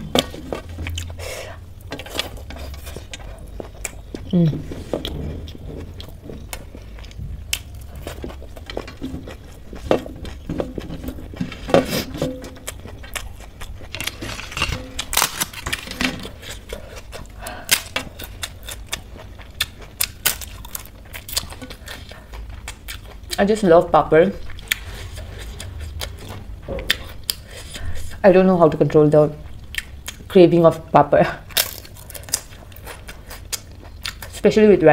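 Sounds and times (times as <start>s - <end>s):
chewing: 0.0s - 23.6s, 24.3s - 28.2s, 29.1s - 30.4s, 31.4s - 34.4s.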